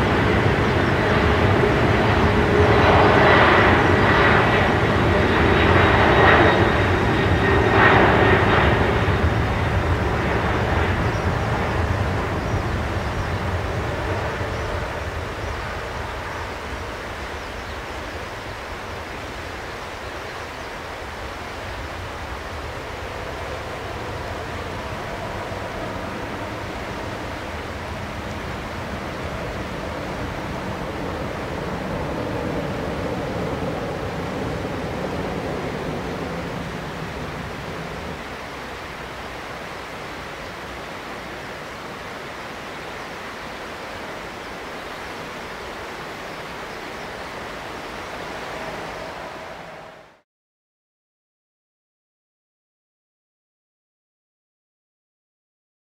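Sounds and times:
jet engines rumbling: 0.0 - 50.2
river rapids rushing: 35.5 - 50.2.

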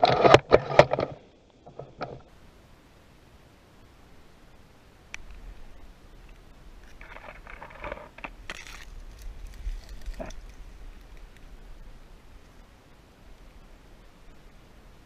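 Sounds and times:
twigs crackling and rustling: 5.1 - 12.7
camera jostling rumble: 5.2 - 12.5.

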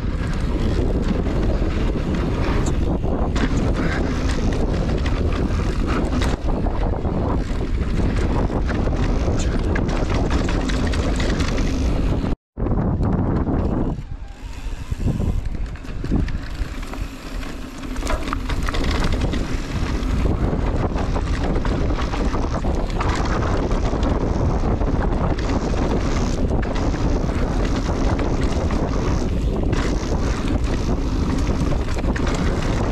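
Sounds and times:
mountain bike knocking and rattling: 0.0 - 32.9
wind rumbling on microphone: 0.0 - 32.9.

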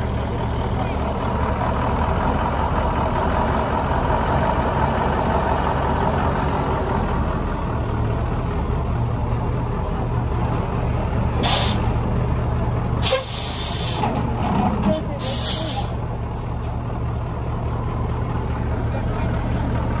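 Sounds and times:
truck engine idling: 0.0 - 20.0
compressed air hiss: 11.4 - 11.8.

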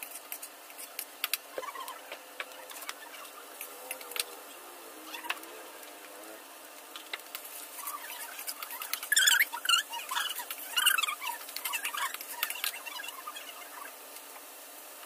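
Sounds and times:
vegetables sizzling: 0.0 - 15.0
high-pitched squeak: 7.8 - 13.9.

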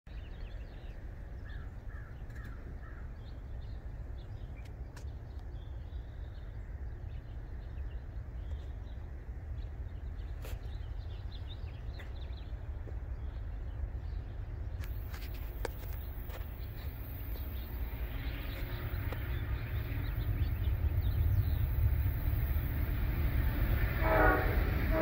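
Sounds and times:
steady low rumble: 2.6 - 25.0
birds calling: 10.2 - 25.0
faint clicks: 14.8 - 19.9.

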